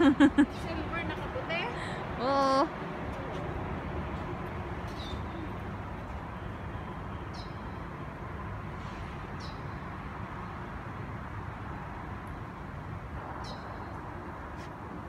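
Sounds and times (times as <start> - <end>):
city traffic hum: 0.0 - 15.0.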